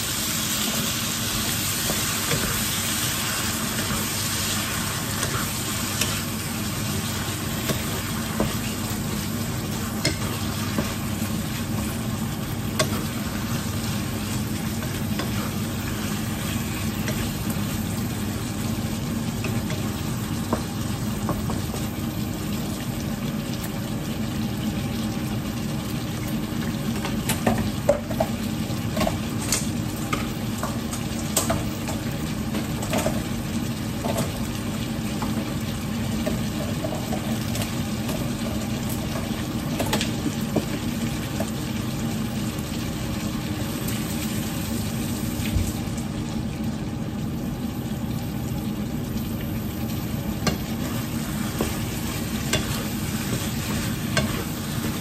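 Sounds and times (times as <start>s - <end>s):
food sizzling in a pan: 0.0s - 55.0s
spatula scraping and tapping pan: 10.0s - 12.0s, 50.4s - 55.0s.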